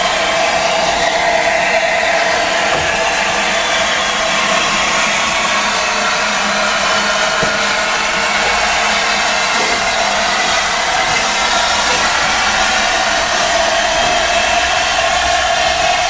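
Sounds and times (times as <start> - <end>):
steam hissing from locomotive: 0.0 - 16.0.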